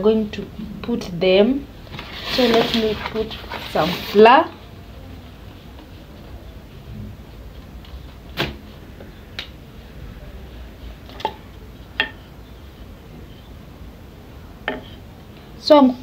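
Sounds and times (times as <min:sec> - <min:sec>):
utensils tapping on a worktop: 0:12.0 - 0:12.2.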